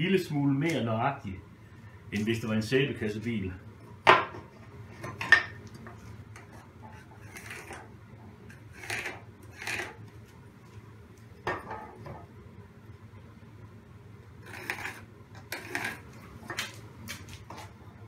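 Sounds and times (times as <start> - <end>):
pencil scratching: 14.5 - 15.0, 15.6 - 16.0.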